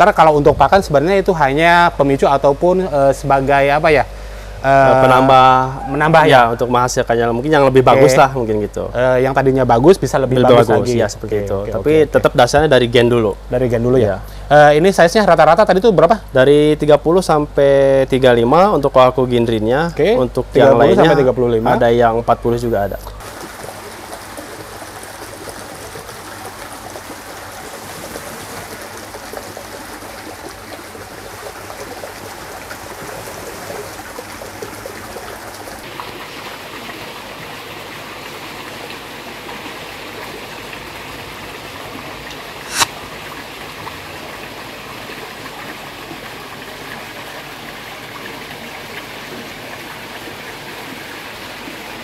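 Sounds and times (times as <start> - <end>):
water trickling into a pond: 0.0 - 52.0
sharp click: 42.7 - 42.9.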